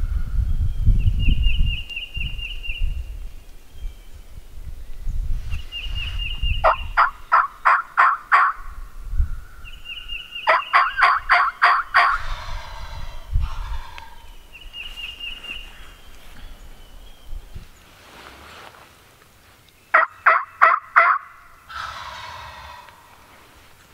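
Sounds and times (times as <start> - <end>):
turkey calling: 6.6 - 8.7, 10.4 - 14.4, 19.9 - 23.4.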